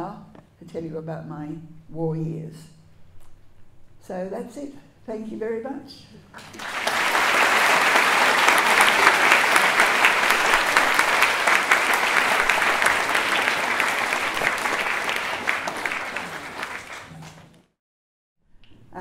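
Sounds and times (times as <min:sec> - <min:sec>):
audience applauding: 0:06.4 - 0:17.7.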